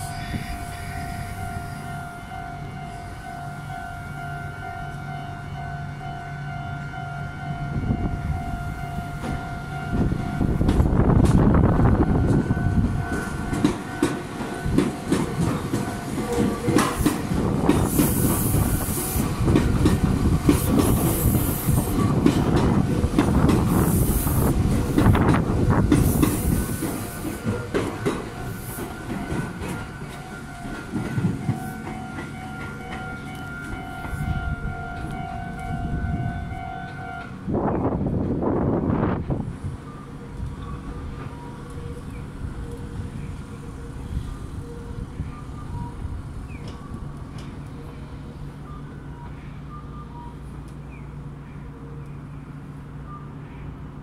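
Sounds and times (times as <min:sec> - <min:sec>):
train wheels clattering over joints: 0:10.0 - 0:35.9.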